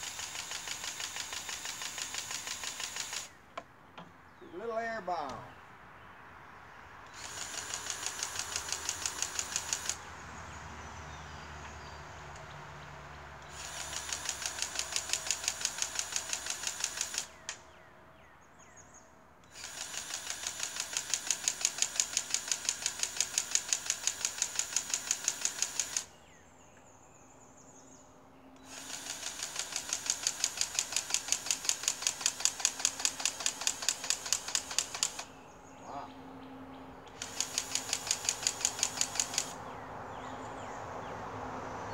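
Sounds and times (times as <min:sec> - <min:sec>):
grease gun clicking pulses: 0:00.0 - 0:03.4, 0:07.1 - 0:10.0, 0:13.4 - 0:17.6, 0:19.5 - 0:26.1, 0:28.6 - 0:35.3, 0:37.1 - 0:39.6.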